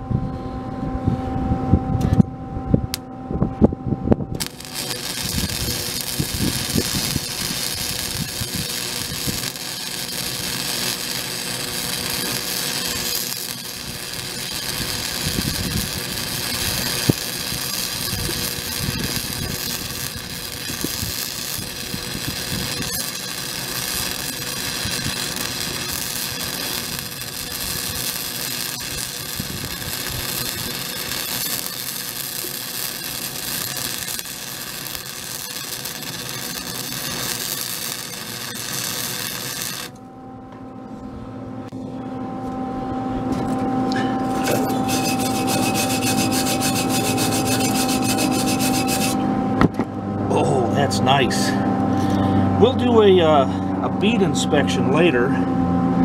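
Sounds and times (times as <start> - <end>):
arc welding crackle and sizzle: 4.3 - 40.1, 43.3 - 49.8, 50.7 - 53.4, 54.0 - 55.2.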